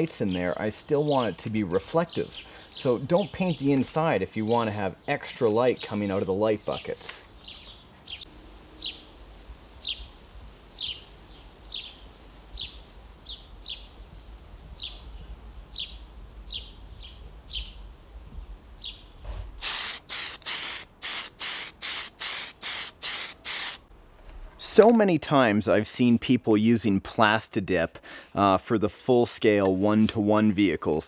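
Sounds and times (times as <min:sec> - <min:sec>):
sparrows chirping: 0:00.1 - 0:09.1, 0:09.8 - 0:10.1, 0:10.8 - 0:14.1, 0:14.7 - 0:17.9, 0:18.7 - 0:19.2
spray paint can hissing: 0:19.2 - 0:23.9.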